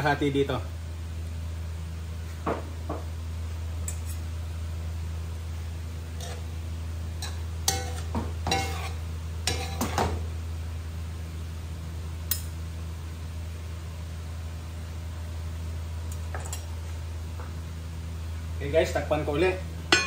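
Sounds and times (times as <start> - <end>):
steady low hum: 0.0 - 20.0
metal tongs clinking in pot: 7.2 - 10.0.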